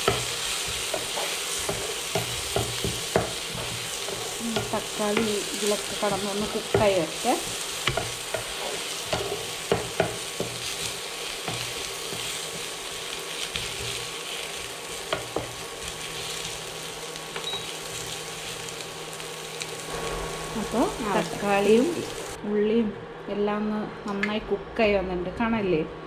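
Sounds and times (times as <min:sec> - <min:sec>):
spatula stirring and scraping: 0:00.0 - 0:16.6
masala sizzling in a frying pan: 0:00.0 - 0:22.4.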